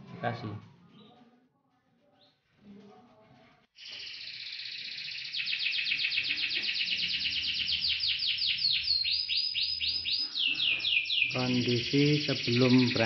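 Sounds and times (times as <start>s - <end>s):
canary singing trill: 3.8s - 13.0s.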